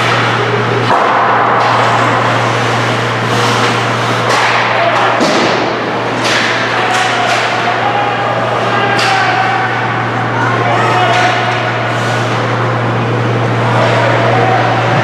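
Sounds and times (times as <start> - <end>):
hockey sticks and puck clacking: 0.0 - 10.2, 10.9 - 12.6
steady low hum: 0.0 - 15.0
murmur of voices: 1.7 - 15.0.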